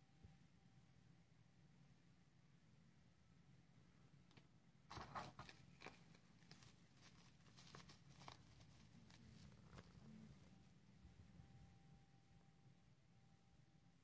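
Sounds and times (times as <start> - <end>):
packets crinkling: 4.9 - 10.2.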